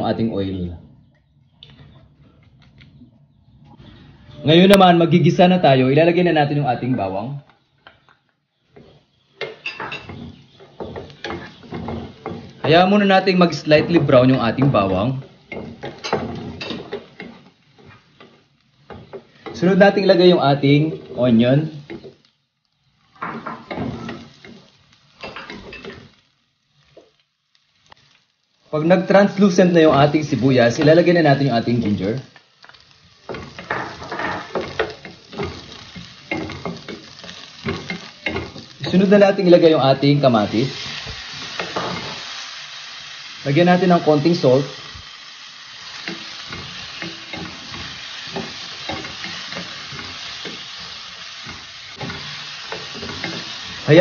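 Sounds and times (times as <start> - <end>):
onions sizzling in oil: 8.4 - 54.0
wooden spoon stirring in pan: 8.6 - 54.0
wooden spatula scraping pan: 8.7 - 19.7, 23.2 - 24.7.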